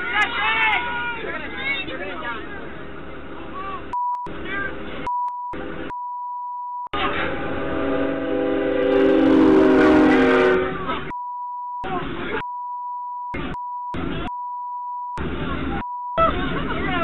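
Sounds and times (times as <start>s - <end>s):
voices inside bus: 0.0s - 5.9s, 6.9s - 17.0s
train horn: 7.1s - 10.9s.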